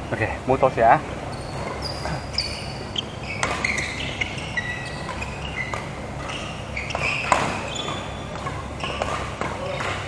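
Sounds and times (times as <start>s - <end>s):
shoes squeaking on floor: 1.2s - 10.0s
racket hitting shuttlecock: 3.4s - 10.0s.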